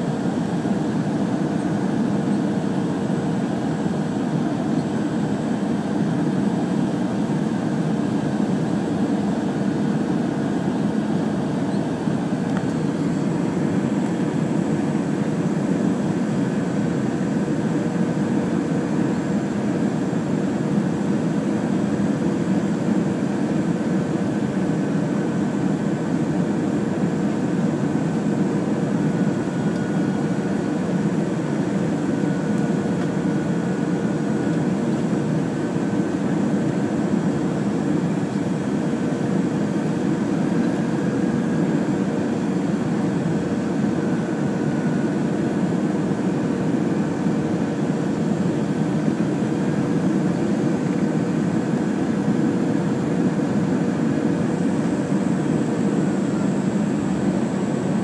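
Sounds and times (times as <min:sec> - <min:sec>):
airliner cabin engine noise: 0:00.0 - 0:58.0
thin wavering whine: 0:26.0 - 0:58.0.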